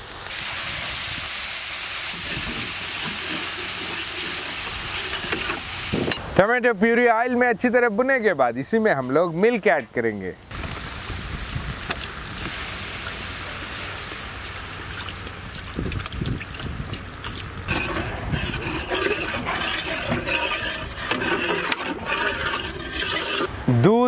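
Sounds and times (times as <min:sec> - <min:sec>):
metal ladle stirring liquid: 0:17.3 - 0:23.5.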